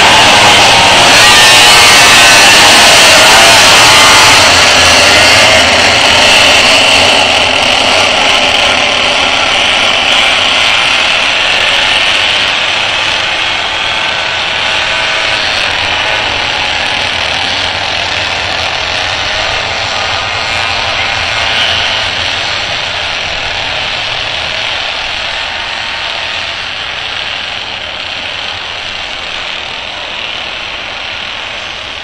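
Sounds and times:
pocket bike engines revving: 0.0 - 32.0.

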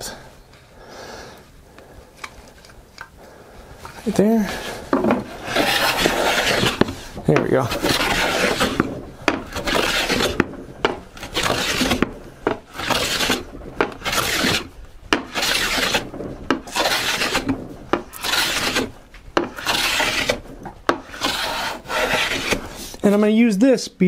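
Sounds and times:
hand plane shaving wood: 4.1 - 23.0.

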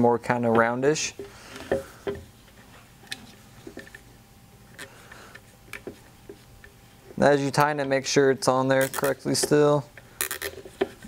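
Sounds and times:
plastic zip tie clicks: 10.2 - 10.6.

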